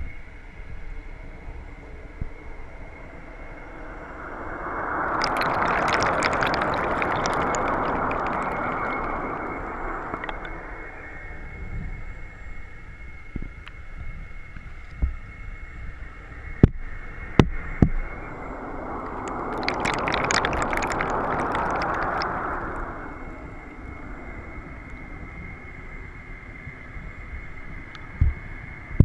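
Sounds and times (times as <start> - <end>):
low underwater rush: 2.4 - 12.1, 16.7 - 25.6
underwater bubbles fizzing: 4.0 - 11.1, 17.9 - 23.8.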